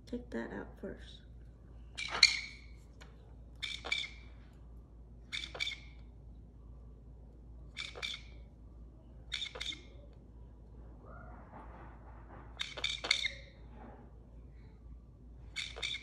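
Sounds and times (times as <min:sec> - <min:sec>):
parrot squawking: 0:02.0 - 0:02.8, 0:03.6 - 0:04.3, 0:05.3 - 0:06.0, 0:07.7 - 0:08.4, 0:09.3 - 0:10.0, 0:12.6 - 0:13.6, 0:15.5 - 0:16.0.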